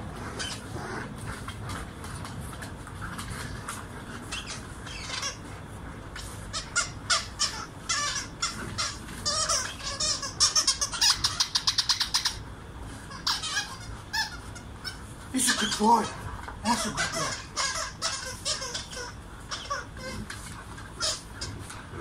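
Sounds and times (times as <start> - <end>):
squeaky dog toy squeaking: 6.5 - 12.4, 13.1 - 20.2, 21.0 - 21.4.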